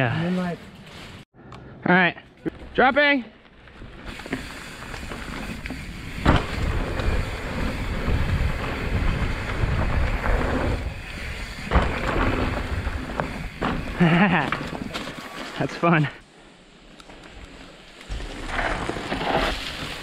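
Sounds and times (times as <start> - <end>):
tyres rumbling on dirt: 3.8 - 16.1, 18.1 - 20.0
bike landing thuds: 4.2 - 10.8, 11.5 - 15.4.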